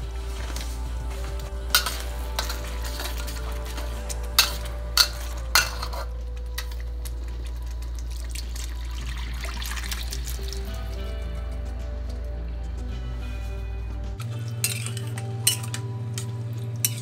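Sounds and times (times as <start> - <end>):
liquid pouring into wok: 7.5 - 10.8.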